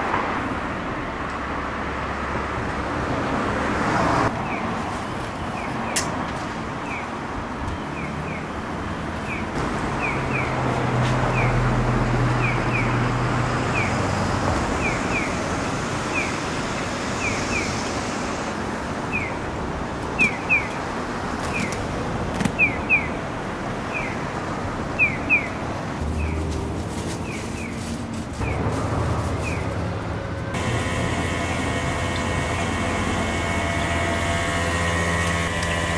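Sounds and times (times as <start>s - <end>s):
street traffic noise: 0.0s - 35.9s
vehicle humming past: 26.0s - 35.9s.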